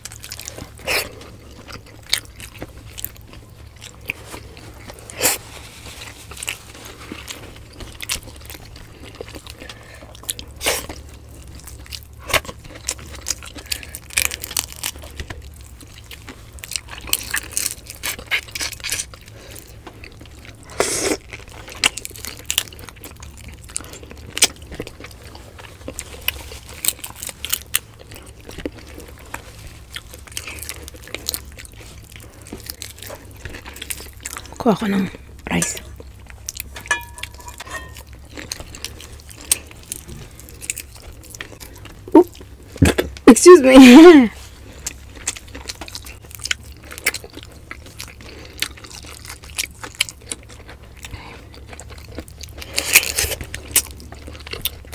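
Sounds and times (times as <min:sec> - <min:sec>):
people chewing and eating: 0:00.0 - 0:54.9
crisp bites: 0:44.7 - 0:54.9.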